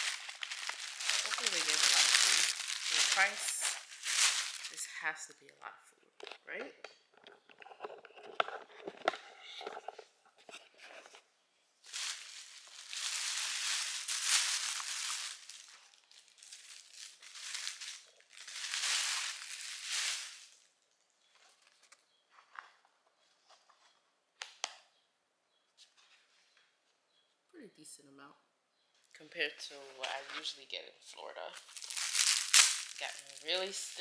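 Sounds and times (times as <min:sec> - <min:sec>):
plastic bag crinkling: 0:00.0 - 0:05.0, 0:11.8 - 0:20.7, 0:31.6 - 0:34.0.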